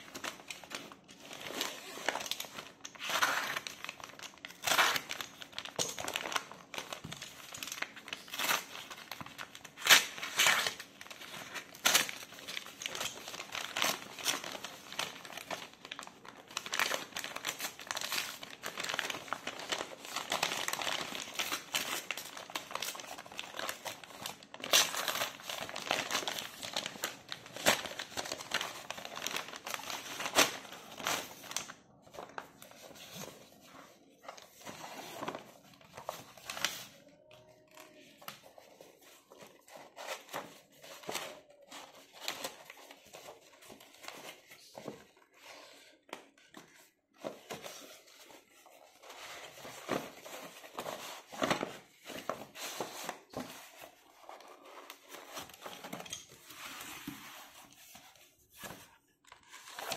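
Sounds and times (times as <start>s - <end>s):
paper bag crinkling and tearing: 0.0s - 33.2s.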